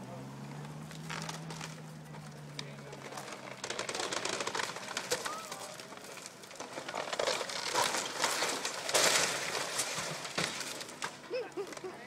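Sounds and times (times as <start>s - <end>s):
wooden house creaking and cracking: 0.8s - 12.0s
wood snapping: 2.5s - 11.9s.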